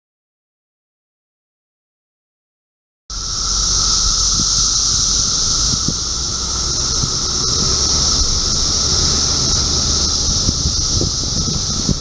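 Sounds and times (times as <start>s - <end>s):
cicadas shrilling: 3.1s - 12.0s.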